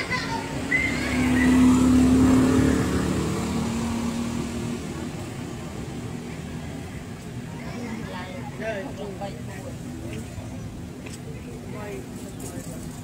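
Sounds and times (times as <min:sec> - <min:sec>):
vehicle engine passing by: 0:00.0 - 0:07.2.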